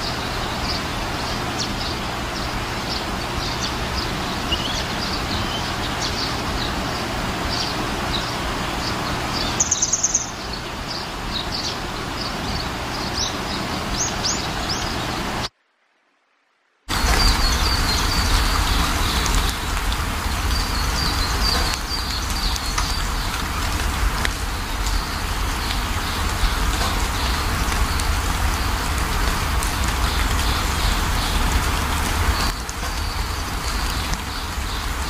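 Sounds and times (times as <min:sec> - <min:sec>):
small birds chirping: 0:00.0 - 0:15.5, 0:16.9 - 0:35.0
steady rushing noise: 0:00.0 - 0:35.0.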